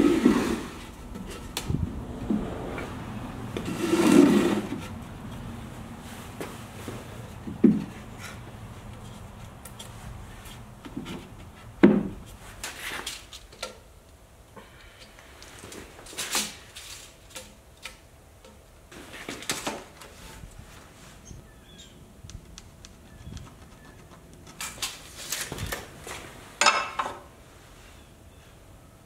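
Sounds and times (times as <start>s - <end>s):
wood scraping and rustling: 0.0s - 13.8s, 15.2s - 18.0s, 18.9s - 21.4s, 22.4s - 27.3s
wooden boards knocking: 10.9s - 12.2s.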